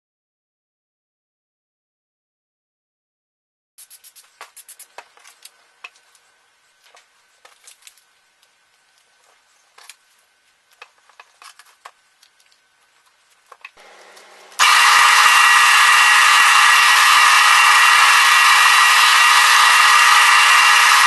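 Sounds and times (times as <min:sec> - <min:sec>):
drill press running: 0:13.8 - 0:21.0.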